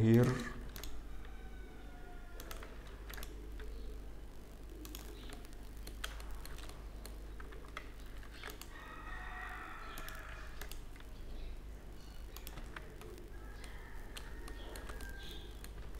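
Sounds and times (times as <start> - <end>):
computer keyboard clicks: 0.0 - 1.0, 2.4 - 3.8, 4.8 - 8.7, 9.8 - 11.0, 12.3 - 15.9
low electrical hum: 0.0 - 15.9
mouse wheel scrolling: 2.2 - 4.0, 4.6 - 15.9.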